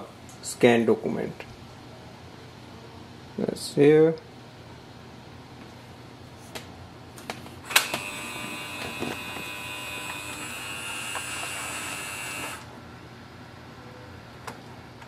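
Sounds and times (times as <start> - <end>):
scanner motor whine: 7.6 - 12.7.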